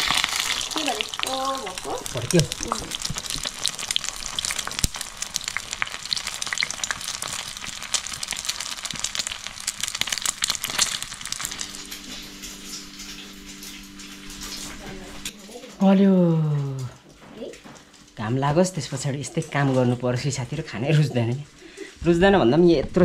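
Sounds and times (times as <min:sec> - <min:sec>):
food frying in hot oil: 0:00.0 - 0:16.9.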